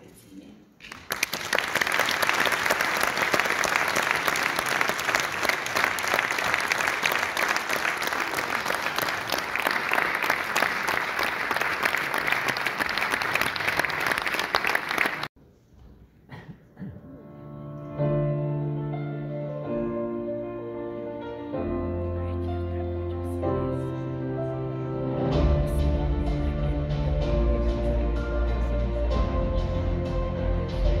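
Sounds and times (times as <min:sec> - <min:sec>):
audience applauding: 0:00.8 - 0:15.3.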